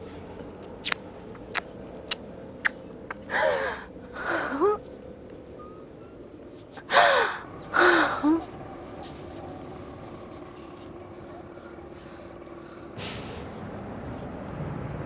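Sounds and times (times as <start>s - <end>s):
person sobbing: 3.3s - 4.8s.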